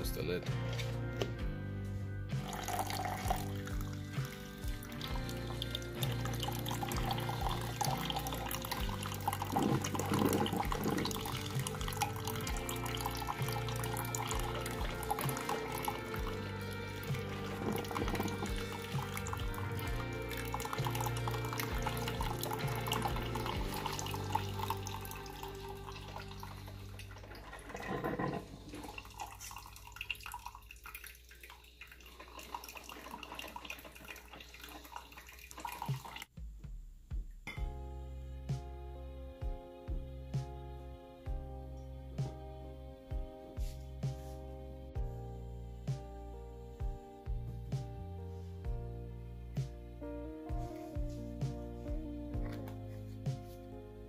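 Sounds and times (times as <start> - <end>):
coffee pouring into glass carafe: 2.4 - 36.2.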